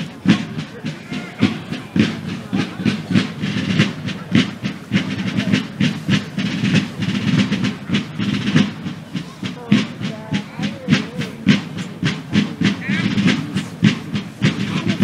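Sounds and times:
military drums marching cadence: 0.0 - 15.0.

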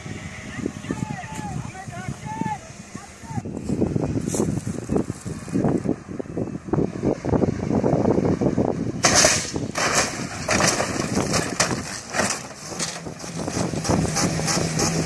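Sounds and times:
wind buffeting microphone: 0.0 - 15.0
car crashing with knocks: 9.0 - 13.7.

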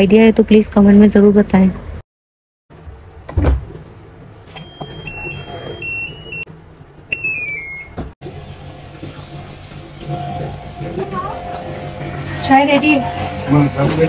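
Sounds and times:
washing machine button beeps: 4.5 - 6.5, 7.1 - 8.1.

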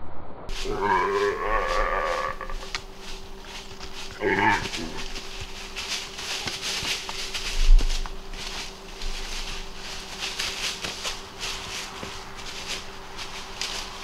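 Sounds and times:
deer bleating: 0.6 - 2.8, 4.0 - 5.3.

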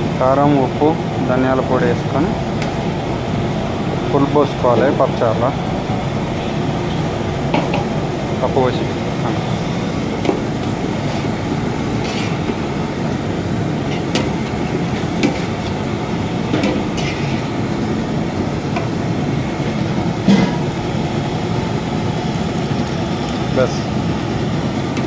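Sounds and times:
low rumbling noise: 0.0 - 25.0
cooking pots and ladle clinking: 13.7 - 17.6, 19.6 - 20.8.

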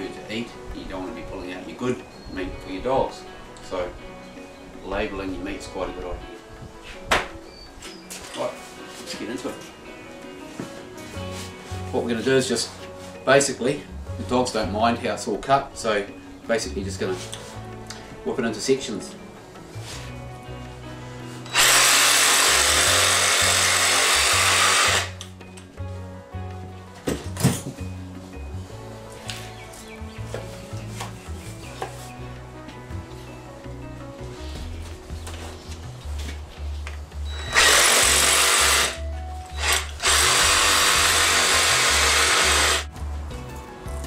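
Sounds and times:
reciprocating saw cutting: 21.5 - 25.2, 37.3 - 42.9.

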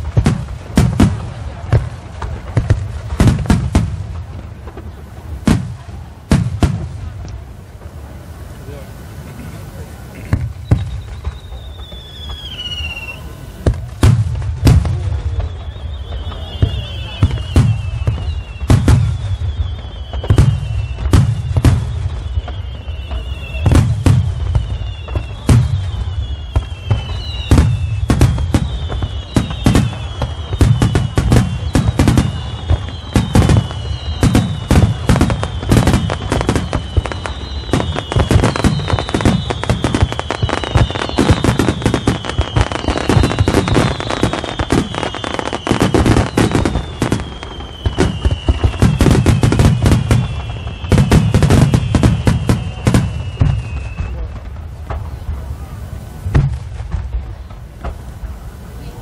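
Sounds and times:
firework bursts and booms: 0.0 - 59.0
high falling whistles: 10.5 - 13.6, 15.0 - 54.3.

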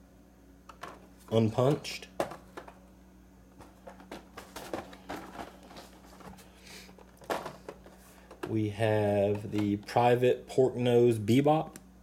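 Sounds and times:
plastic packaging crinkling: 3.6 - 8.6.

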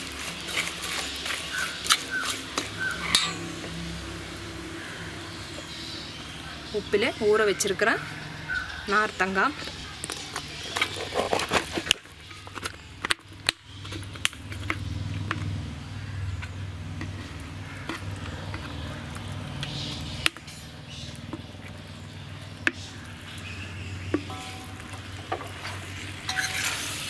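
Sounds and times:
low hum: 23.6 - 26.8.

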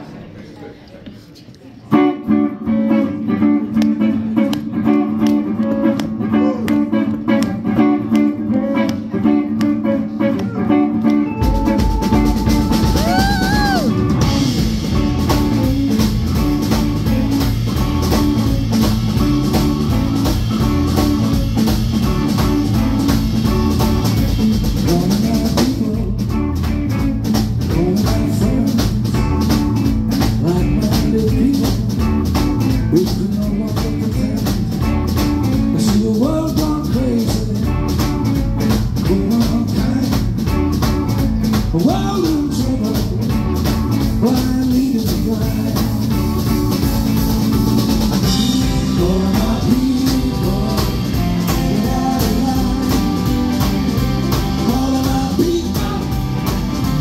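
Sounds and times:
electric guitar: 1.8 - 57.0
live rock band playing: 1.9 - 57.0.

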